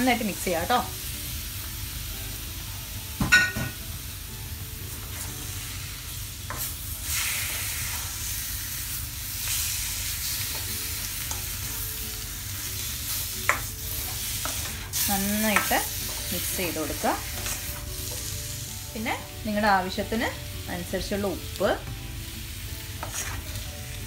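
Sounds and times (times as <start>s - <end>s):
chicken sizzling in a wok: 0.0s - 24.0s.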